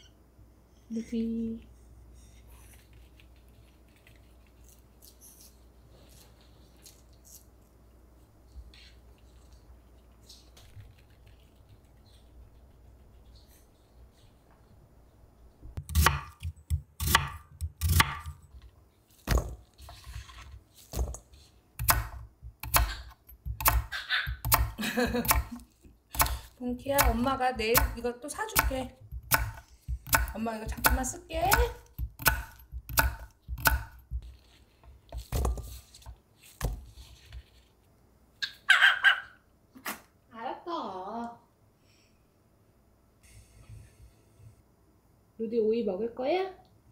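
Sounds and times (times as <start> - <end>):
knife chopping on cutting board: 15.8 - 18.4, 21.8 - 25.6, 26.2 - 34.3.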